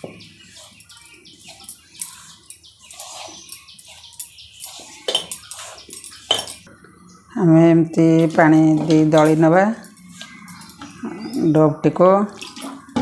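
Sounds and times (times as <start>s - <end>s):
hands rubbing flour in metal bowl: 0.0s - 6.5s, 8.2s - 10.6s.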